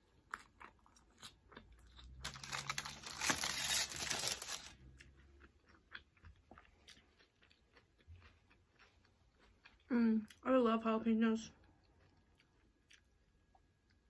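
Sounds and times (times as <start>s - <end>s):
close chewing: 0.0s - 10.4s.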